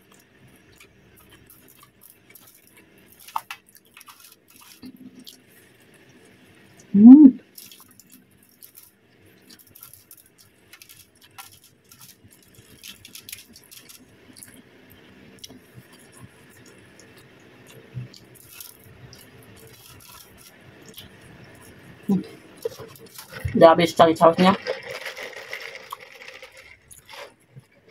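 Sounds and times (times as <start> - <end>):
aluminium foil crinkling: 1.4 - 4.8, 7.6 - 14.5, 18.3 - 21.0, 22.6 - 23.6, 24.2 - 27.5.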